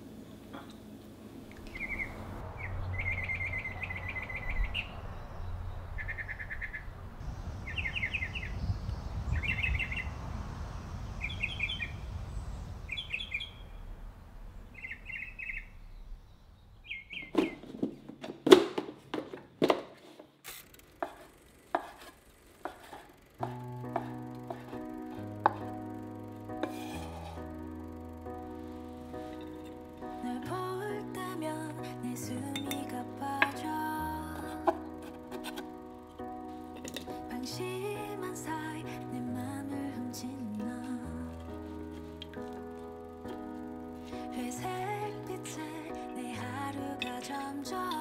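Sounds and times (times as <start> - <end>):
songbird chirping: 1.5 - 17.7.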